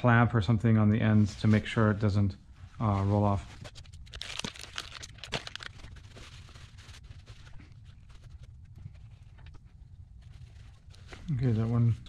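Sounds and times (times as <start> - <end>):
steady low hum: 0.0 - 12.0
paper towel rustling: 2.6 - 9.4, 10.2 - 12.0.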